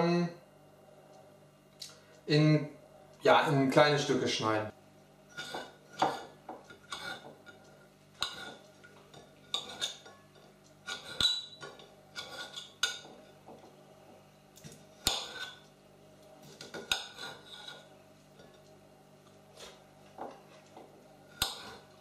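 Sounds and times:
knife cutting on ceramic plate: 0:08.2 - 0:08.6, 0:12.2 - 0:13.1.

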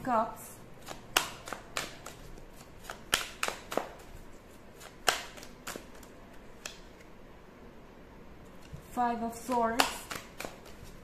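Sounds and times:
cards snapping and clicking: 0:00.8 - 0:04.2, 0:04.8 - 0:07.1, 0:09.5 - 0:11.0.

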